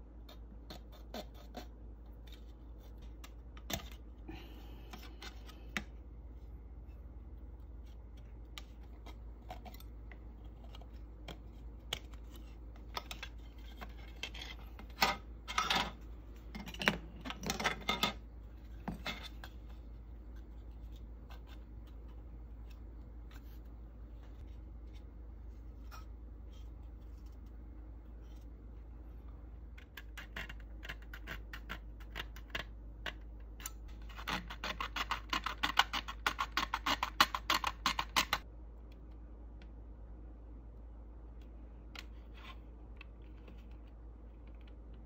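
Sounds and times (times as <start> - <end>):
low steady hum: 0.0 - 45.0
plastic parts clicking and tapping: 29.8 - 38.4.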